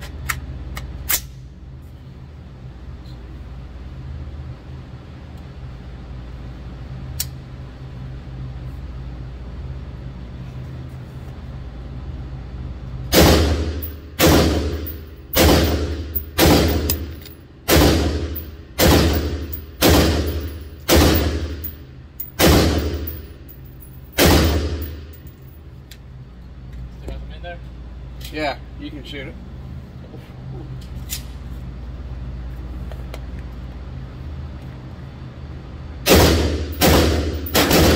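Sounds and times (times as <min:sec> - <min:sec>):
low ventilation hum: 0:00.0 - 0:37.9
rifle shots echoing: 0:13.1 - 0:21.7, 0:22.4 - 0:23.2, 0:24.1 - 0:25.1, 0:36.1 - 0:37.9.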